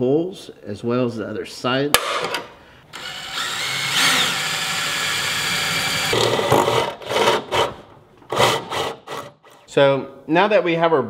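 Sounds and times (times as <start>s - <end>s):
cordless drill boring holes: 2.9s - 9.6s.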